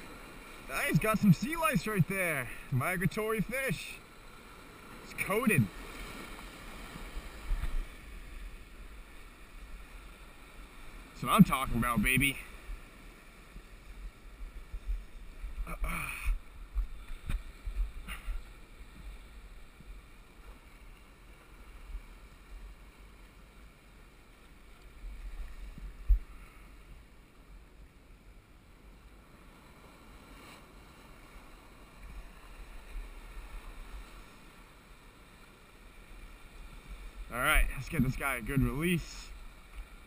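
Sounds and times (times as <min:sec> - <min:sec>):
small waves washing around rocks: 0:00.0 - 0:15.8
wind rumbling on microphone: 0:25.0 - 0:26.4.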